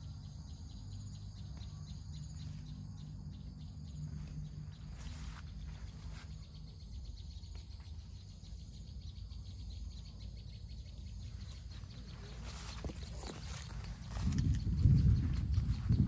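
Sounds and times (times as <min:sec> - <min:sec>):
insects chirping: 0:00.0 - 0:16.0
low rumble: 0:11.2 - 0:16.0.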